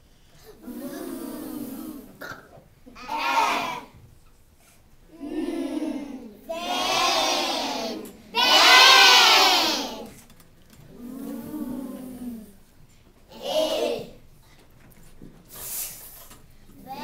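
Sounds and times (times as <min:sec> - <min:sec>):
children calling out in chorus: 0:03.0 - 0:04.0, 0:05.1 - 0:10.1, 0:13.3 - 0:14.2.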